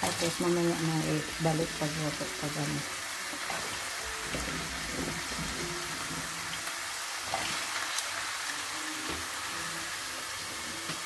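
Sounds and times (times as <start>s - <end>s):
fries sizzling in hot oil: 0.0s - 11.0s.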